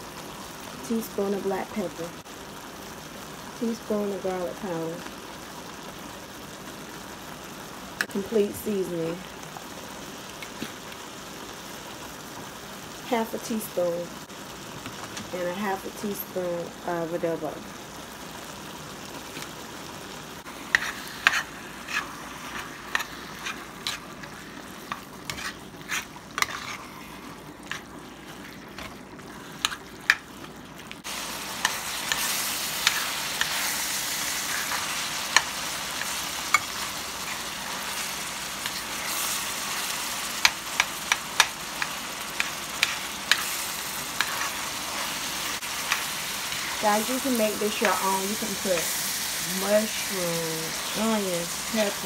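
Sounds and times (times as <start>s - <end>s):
meat sizzling in a pan: 0.0s - 52.0s
metal spoon scraping a pan: 20.6s - 27.9s, 40.7s - 48.9s.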